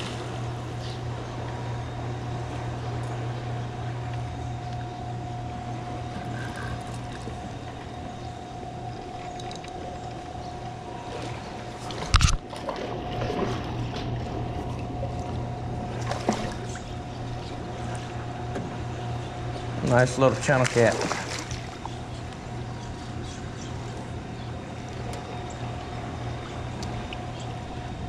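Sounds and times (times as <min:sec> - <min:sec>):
constant low hum: 0:00.0 - 0:28.0
fish splashing: 0:08.9 - 0:18.3, 0:20.3 - 0:22.6
rushing water: 0:19.9 - 0:21.8.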